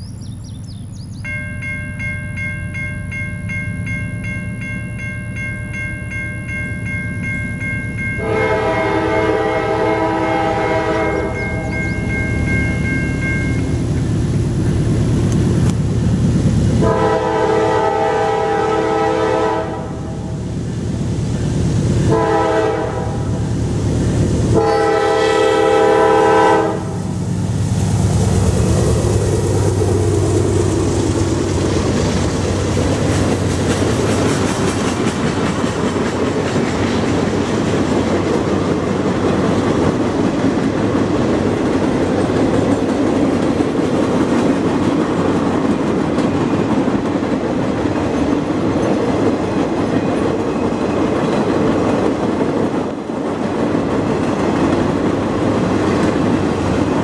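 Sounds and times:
locomotive engine passing: 0.3 - 57.0
train wheels clickety-clack on rails: 2.7 - 27.6, 28.2 - 57.0
locomotive horn blasts: 8.2 - 11.8, 16.8 - 20.3, 22.0 - 23.4, 24.5 - 27.0.

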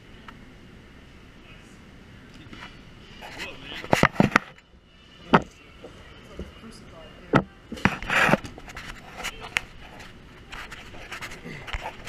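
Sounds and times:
short scrape and rubbing: 2.6 - 4.5.

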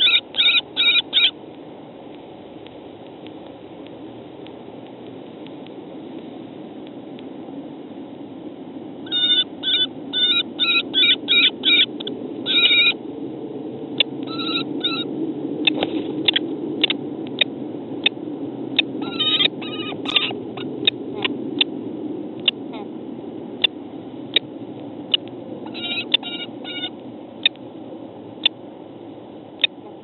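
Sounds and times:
kestrels calling: 0.0 - 1.4, 9.1 - 13.0, 14.0 - 15.1, 18.8 - 21.3, 25.1 - 27.6
low background noise: 0.0 - 30.0.

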